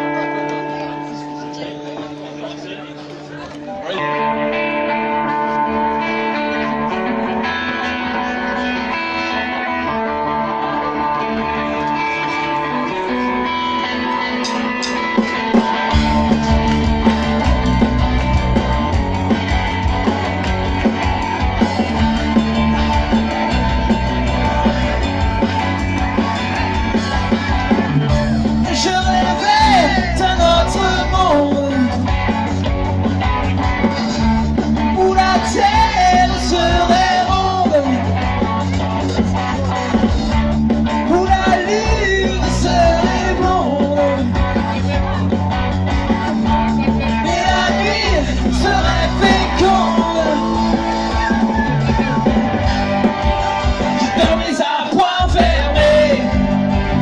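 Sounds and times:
male lead singer: 0:00.0 - 0:57.0
rock band playing: 0:00.0 - 0:57.0
man singing: 0:26.9 - 0:32.5, 0:33.9 - 0:40.3, 0:40.9 - 0:45.7, 0:46.4 - 0:51.5, 0:54.0 - 0:57.0.

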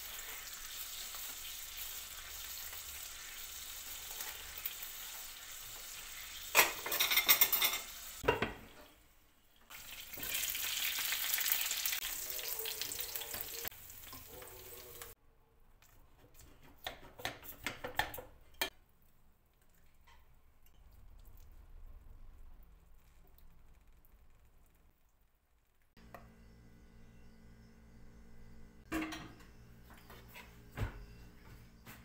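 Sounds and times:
meat sizzling in oil: 0:00.0 - 0:08.2, 0:09.7 - 0:15.2
clattering against pan: 0:06.5 - 0:08.6.

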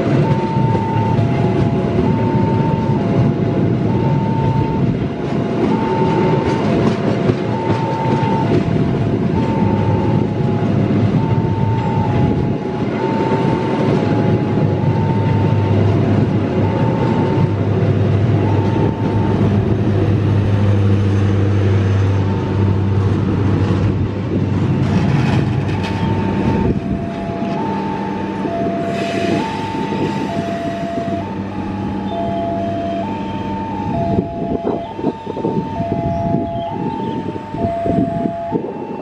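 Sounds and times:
train wheels clattering on rails: 0:00.0 - 0:32.0
train rumble: 0:00.0 - 0:39.0
level crossing two-note alarm: 0:18.4 - 0:19.5, 0:25.8 - 0:39.0.

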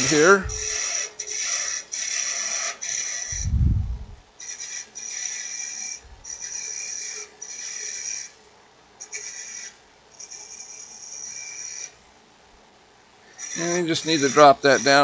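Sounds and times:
gouge cutting wood on a lathe: 0:00.0 - 0:03.4, 0:04.4 - 0:08.3, 0:09.1 - 0:12.0, 0:13.4 - 0:15.0.

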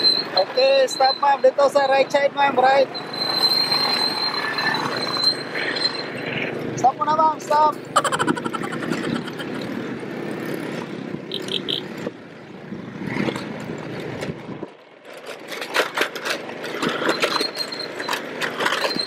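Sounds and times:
atv engine running: 0:07.8 - 0:12.0.

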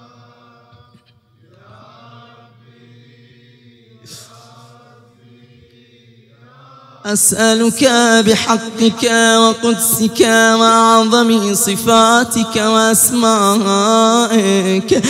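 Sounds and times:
hissing breath: 0:04.0 - 0:04.7.

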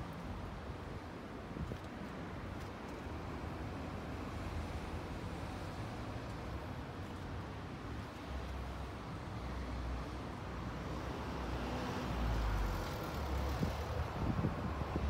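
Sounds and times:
wind buffeting microphone: 0:13.4 - 0:15.0.

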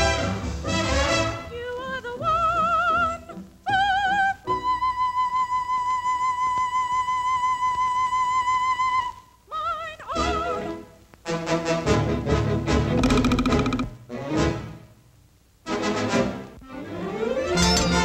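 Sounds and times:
operatic singing with vibrato: 0:00.0 - 0:10.9.

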